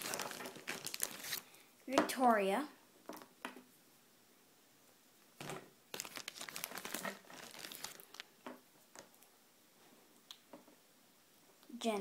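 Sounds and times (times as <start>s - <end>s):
crinkly rustling: 0.0s - 1.5s, 5.5s - 9.3s.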